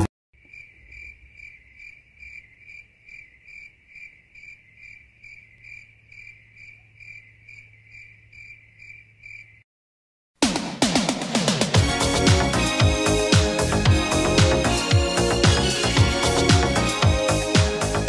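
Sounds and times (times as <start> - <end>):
cricket chirping: 0.4 - 9.7.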